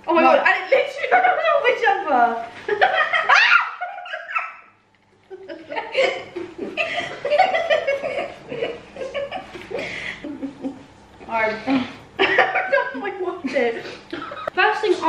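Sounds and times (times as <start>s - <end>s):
people laughing: 2.7s - 10.9s, 11.8s - 14.6s.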